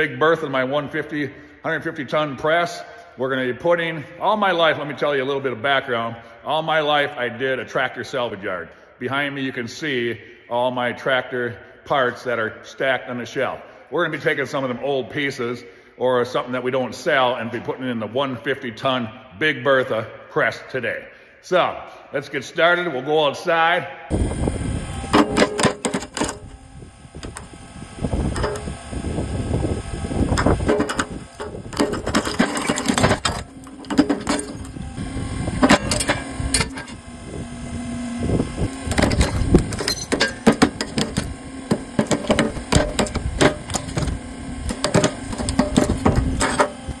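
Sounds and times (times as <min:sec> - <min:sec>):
low steady hum: 0:24.1 - 0:47.0
metal housing cracking under press: 0:25.1 - 0:26.6, 0:28.3 - 0:28.8, 0:30.3 - 0:34.8, 0:35.6 - 0:37.0, 0:38.8 - 0:46.8.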